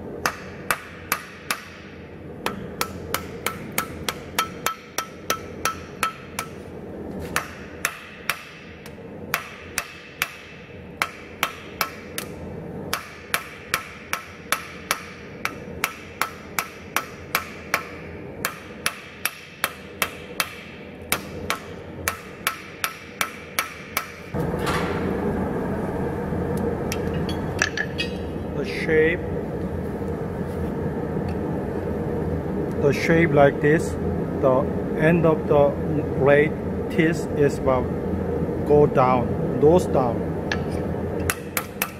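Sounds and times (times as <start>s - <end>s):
steady background noise: 0.0s - 41.9s
hammer ringing on anvil: 27.2s - 28.4s.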